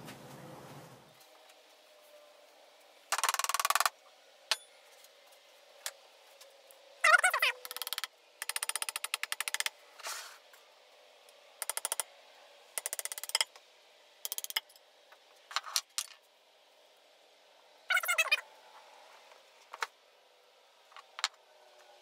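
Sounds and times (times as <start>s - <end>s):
rapid tapping on metal and wood: 7.6s - 9.8s, 11.6s - 12.0s, 12.8s - 13.5s, 14.2s - 14.7s.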